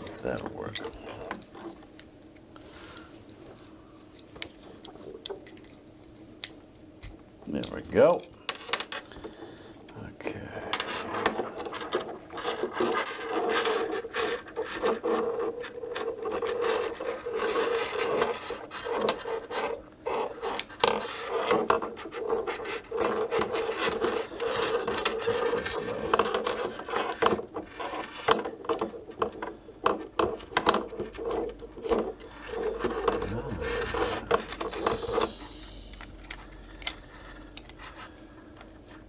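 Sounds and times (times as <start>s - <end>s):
steady low hum: 0.0s - 39.0s
hands handling plastic parts: 10.7s - 39.0s.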